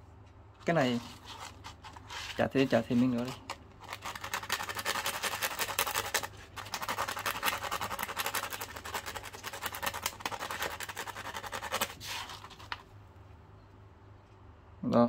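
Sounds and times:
metal rubbing on sandpaper: 0.9 - 12.6.

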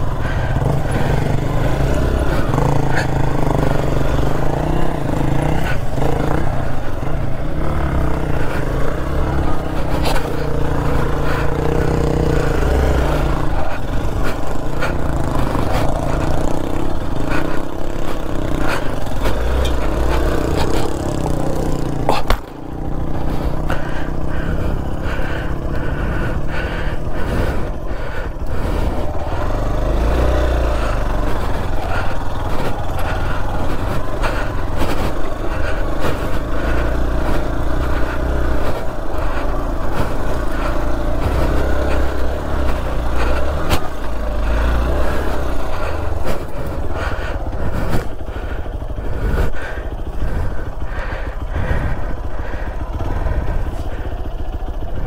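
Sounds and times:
motorcycle engine under load: 0.0 - 55.0.

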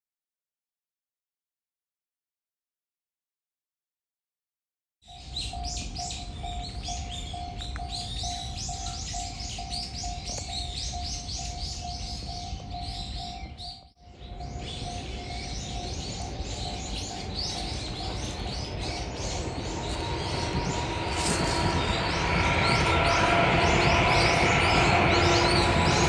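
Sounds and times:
flock of small birds chirping: 5.2 - 26.0
rushing background noise: 5.2 - 26.0.

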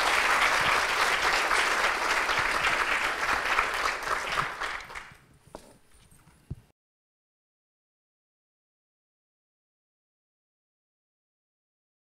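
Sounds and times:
audience applauding: 0.0 - 5.2.

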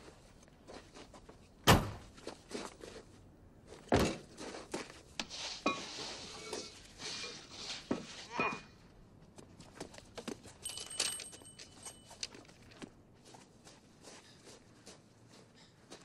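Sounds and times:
footsteps: 9.2 - 16.0.

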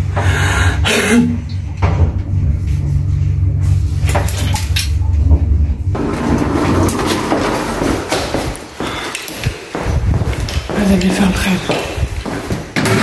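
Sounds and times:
lift doors opening: 0.0 - 10.1
lift humming: 0.0 - 13.0.

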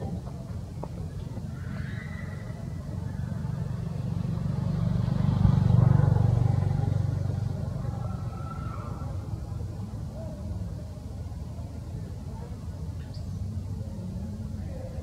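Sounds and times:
vehicle engine passing by: 3.1 - 9.6.

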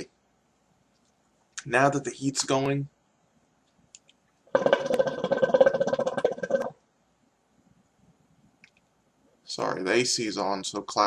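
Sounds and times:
hookah water bubbling: 4.5 - 6.8.

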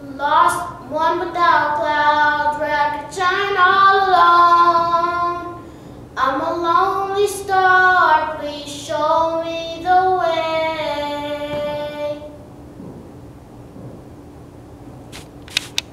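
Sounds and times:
boy singing unaccompanied: 0.0 - 5.6, 6.2 - 12.4.

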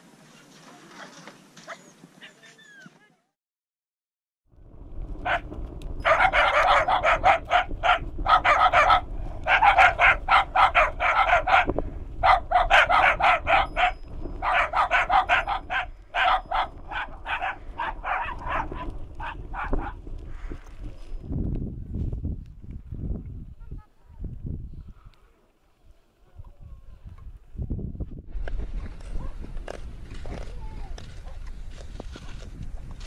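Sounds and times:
dog barking fast: 6.0 - 20.0.

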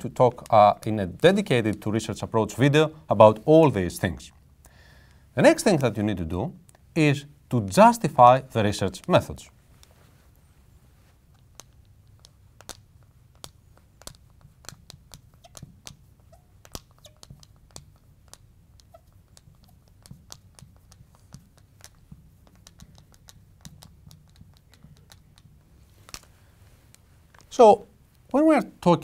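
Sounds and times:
marker writing on glass: 11.6 - 25.7.

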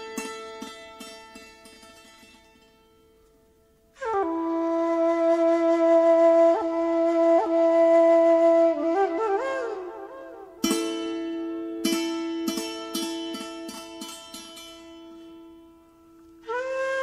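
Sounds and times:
flute music: 3.9 - 11.8, 16.3 - 17.0.

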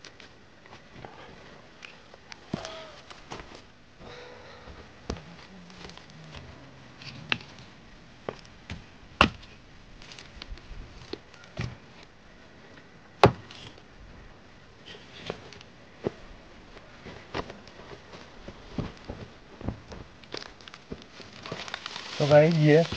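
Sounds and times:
dry sticks cracking and knocking: 4.7 - 12.1, 18.8 - 22.9.

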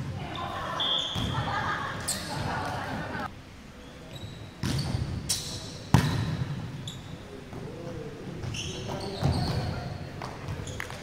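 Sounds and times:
volleyball slaps echoing in gym: 1.1 - 1.5, 4.6 - 6.6
sneaker squeaks on court floor: 3.8 - 7.3, 8.4 - 11.0.

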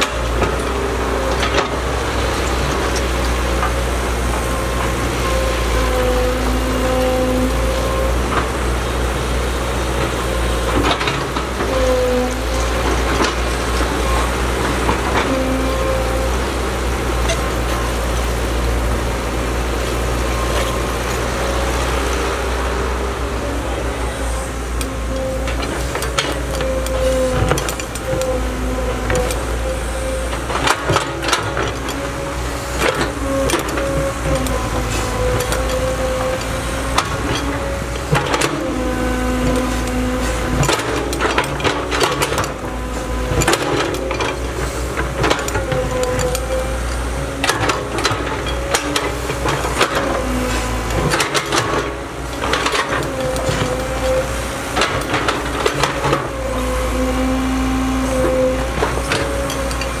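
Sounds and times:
excavator diesel engine running: 0.0 - 60.0
excavator bucket knocking and clanking: 9.8 - 18.5, 24.8 - 29.6, 30.2 - 60.0.

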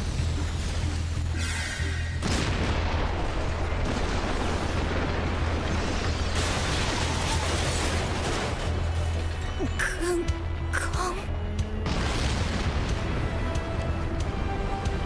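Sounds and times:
explosion blast rumble: 2.2 - 9.0, 11.8 - 13.6.

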